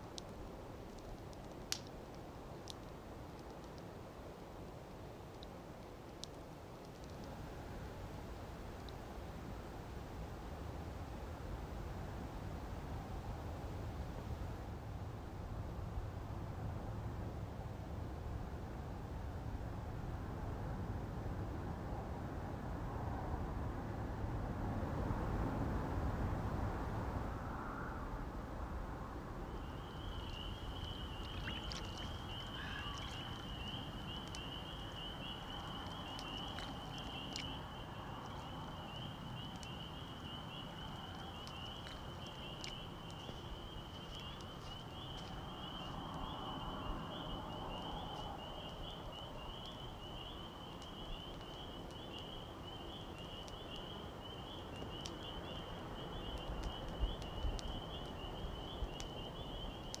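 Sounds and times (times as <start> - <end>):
soft outdoor hiss: 0.0 - 60.0
faint clicks: 0.1 - 3.9, 4.8 - 7.4, 30.1 - 46.4, 50.7 - 52.4, 53.2 - 54.0, 54.8 - 58.2, 58.8 - 59.2.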